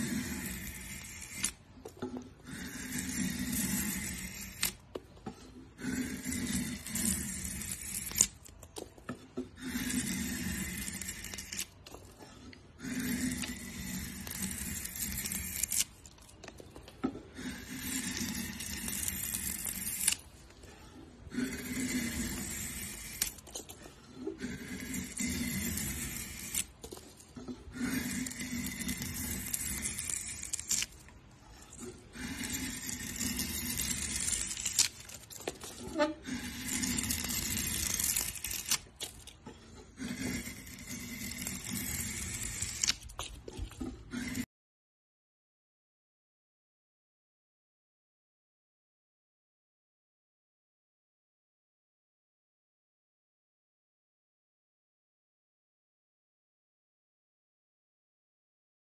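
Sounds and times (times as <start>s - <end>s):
drawknife scraping wood: 0.0s - 44.5s.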